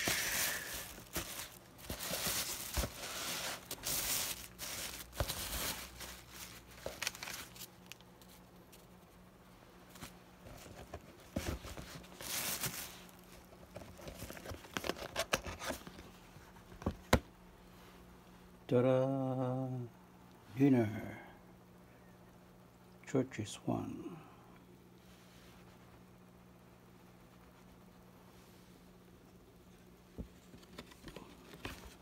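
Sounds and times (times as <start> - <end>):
plastic bag crinkling: 0.0 - 8.4, 11.8 - 13.5.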